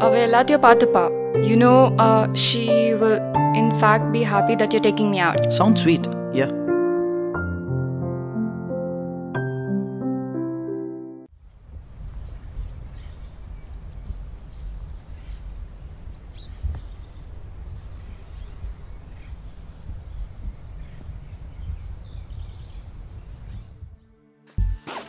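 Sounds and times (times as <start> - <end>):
small birds chirping: 11.3 - 24.2.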